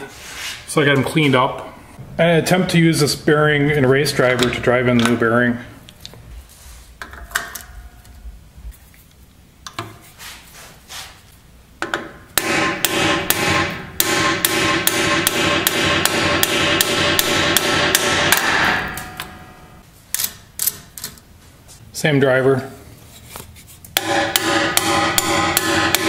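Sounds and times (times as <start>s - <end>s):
hammer striking metal with ringing: 12.4s - 19.8s, 24.0s - 26.0s.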